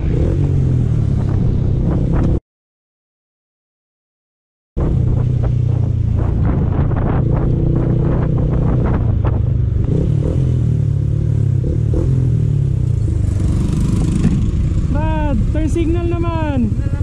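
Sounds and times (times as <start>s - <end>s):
wind buffeting microphone: 0.1s - 2.4s, 4.8s - 10.3s
motorcycle engine running: 4.8s - 17.0s.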